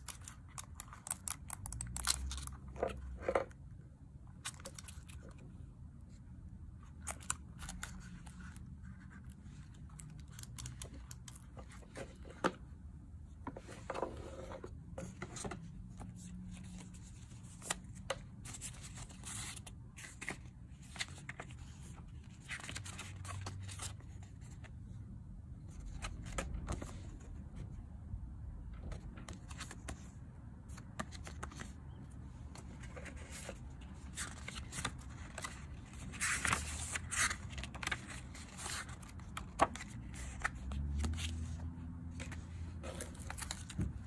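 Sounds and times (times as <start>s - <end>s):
paper and card rustling: 0.0s - 3.6s, 32.5s - 44.0s.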